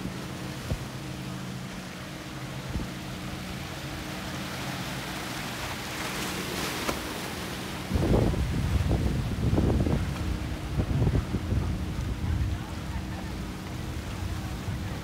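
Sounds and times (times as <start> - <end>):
outboard motors running: 0.0 - 15.0
rushing water and wake hiss: 0.0 - 15.0
wind buffeting microphone: 7.7 - 15.0.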